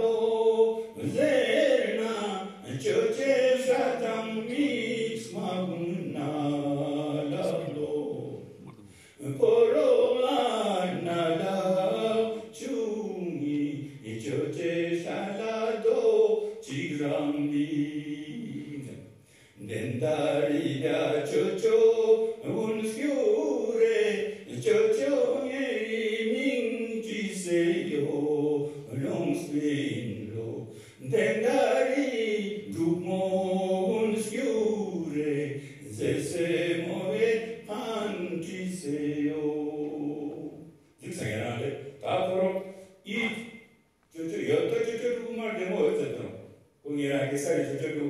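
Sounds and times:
man singing unaccompanied: 0.0s - 48.0s.

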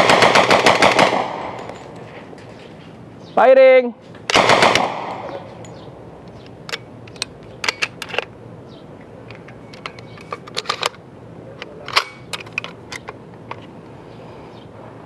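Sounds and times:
gunfire echo: 0.0s - 1.7s, 4.3s - 5.5s
metallic clicks and rattles: 5.6s - 8.3s, 9.2s - 11.0s, 11.6s - 13.7s.

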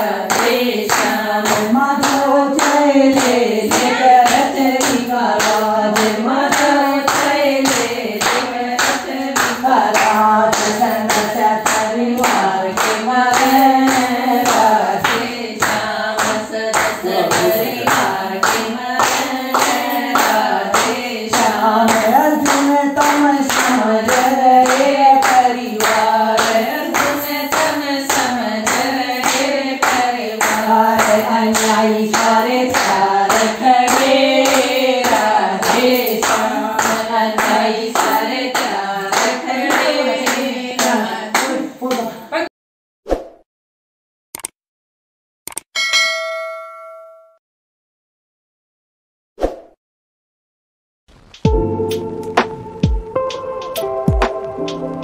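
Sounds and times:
women clapping in rhythm: 0.0s - 42.2s
devotional song being sung: 0.0s - 42.4s.

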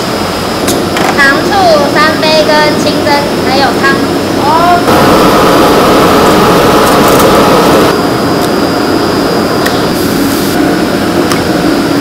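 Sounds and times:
gas burners roaring: 0.0s - 12.0s.

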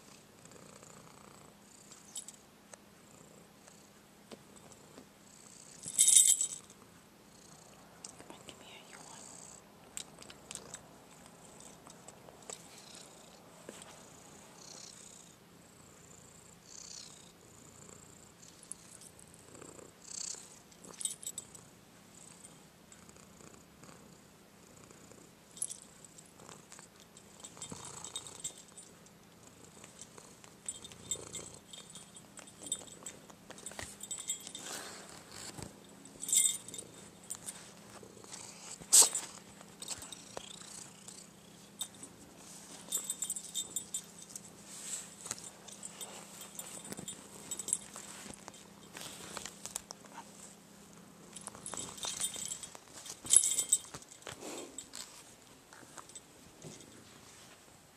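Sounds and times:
cat purring: 0.0s - 2.2s, 6.7s - 25.4s, 26.0s - 39.0s, 39.7s - 42.8s
collar bell jingling: 5.9s - 6.7s, 27.2s - 29.0s, 30.0s - 35.0s, 35.8s - 37.7s, 42.7s - 44.5s, 45.2s - 49.1s, 51.3s - 55.2s.

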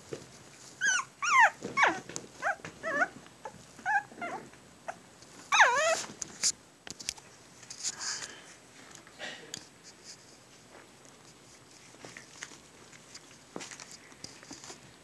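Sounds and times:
puppies yipping and squealing: 0.8s - 6.0s.

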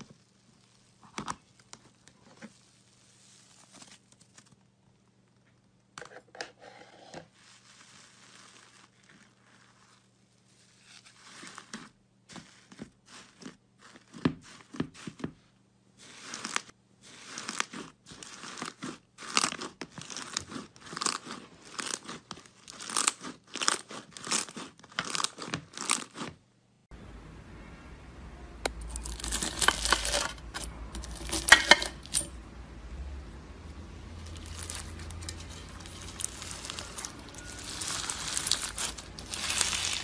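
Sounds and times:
slime crackling and popping: 28.7s - 30.4s, 34.1s - 40.0s.

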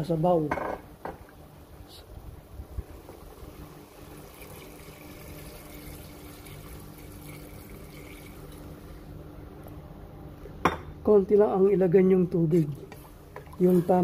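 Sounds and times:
water pouring into a pot: 3.2s - 8.8s.

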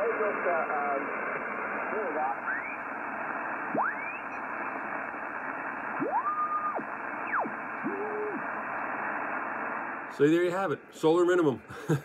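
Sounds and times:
radio receiver hissing: 0.0s - 10.2s
whistles gliding in pitch: 6.1s - 8.1s.

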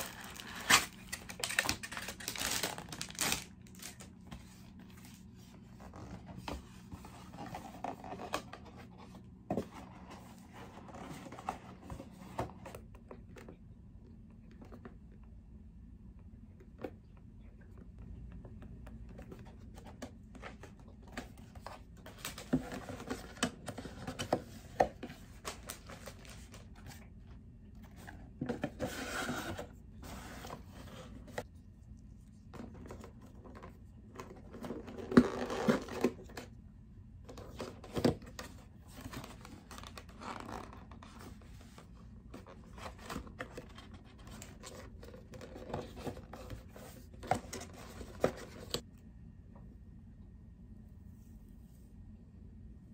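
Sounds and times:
cardboard being folded: 0.0s - 12.5s.

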